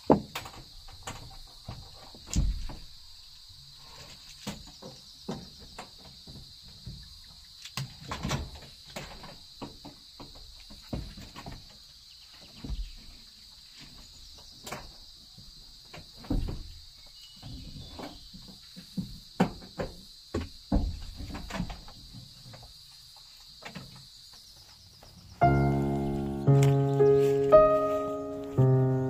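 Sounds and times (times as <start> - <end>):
thump: 1.7 - 2.9, 16.2 - 16.7
high insect buzz: 25.4 - 29.0.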